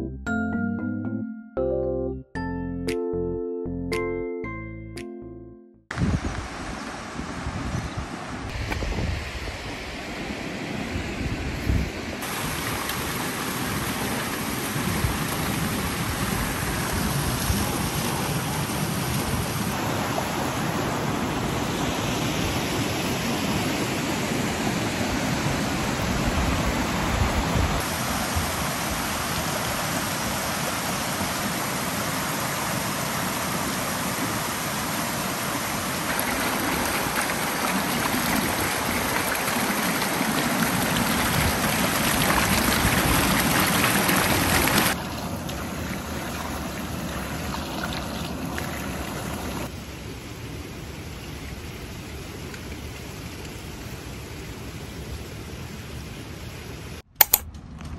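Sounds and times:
water rushing over rocks: 12.2s - 49.7s.

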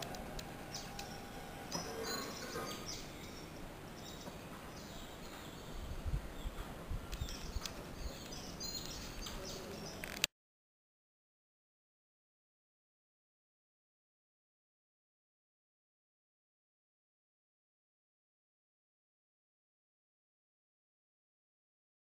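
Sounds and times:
outdoor background noise: 0.0s - 10.3s
bird chirps: 0.7s - 10.2s.

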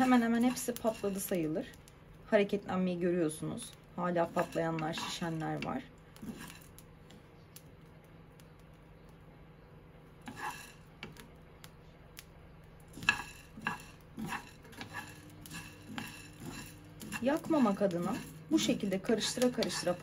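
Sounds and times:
wooden spoon scraping a pan: 0.0s - 1.7s, 3.4s - 6.8s, 10.2s - 10.9s, 12.9s - 20.0s
grains popping: 0.0s - 20.0s.

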